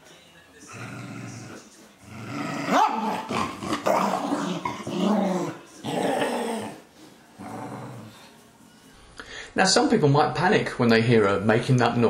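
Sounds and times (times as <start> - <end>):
dog growling: 0.7 - 8.3
dog yelping: 2.7 - 4.3.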